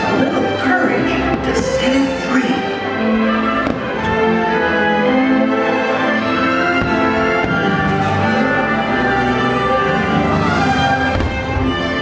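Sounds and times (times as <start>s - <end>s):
orchestral music: 0.0s - 12.0s
faint firework pops: 3.6s - 3.9s.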